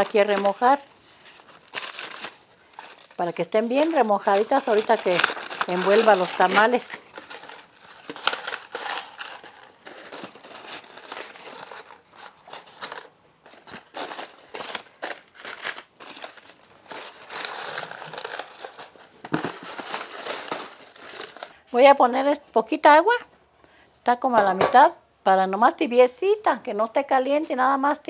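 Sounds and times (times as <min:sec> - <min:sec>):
dry corn husks rustling: 0:00.0 - 0:21.5.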